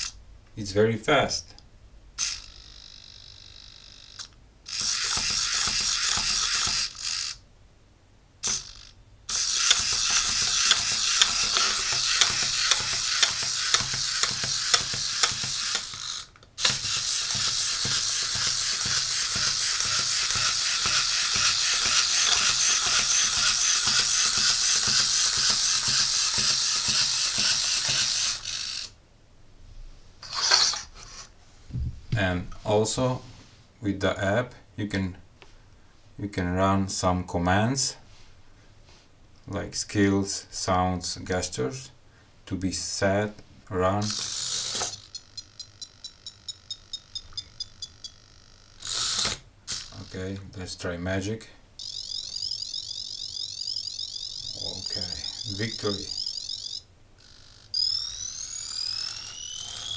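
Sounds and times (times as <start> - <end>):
robot servos whirring and clicking: 2.2 - 7.4, 8.4 - 28.9, 44.0 - 45.7, 48.8 - 50.2, 51.8 - 59.9.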